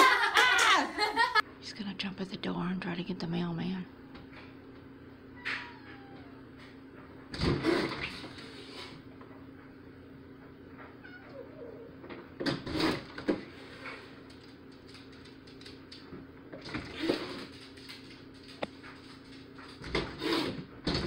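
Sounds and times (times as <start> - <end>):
cat meowing loudly: 5.4 - 6.4.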